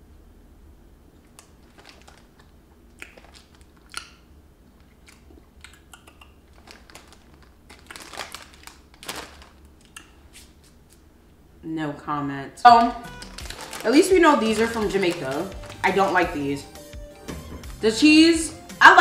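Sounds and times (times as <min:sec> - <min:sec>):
chewing crunchy snacks: 0:01.2 - 0:10.2, 0:13.0 - 0:16.4
plastic bag crinkling: 0:01.3 - 0:03.9, 0:06.4 - 0:10.0, 0:12.7 - 0:16.9.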